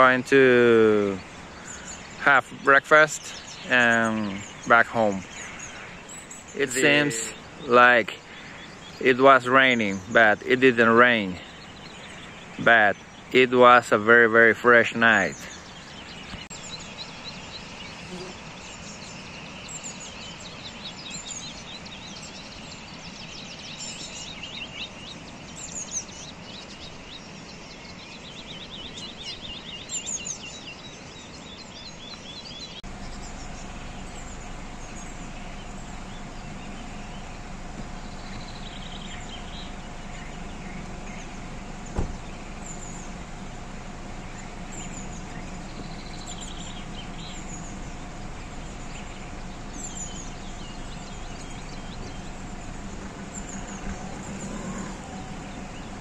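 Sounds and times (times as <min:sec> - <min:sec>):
diesel engine idling: 0:00.0 - 0:30.6, 0:31.3 - 0:56.0
birds chirping and trilling: 0:00.0 - 0:56.0
sharp thump: 0:41.9 - 0:42.4.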